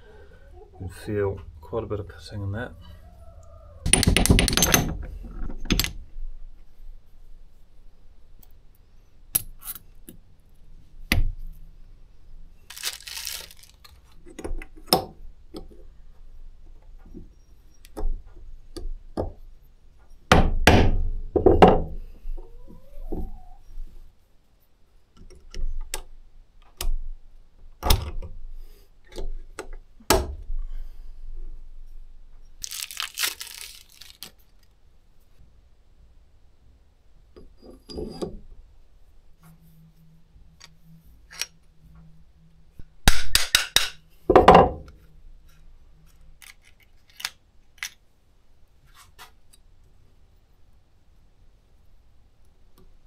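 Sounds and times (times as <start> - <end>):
metal parts clinking on wood: 3.9 - 6.0
short rustle: 12.7 - 14.0.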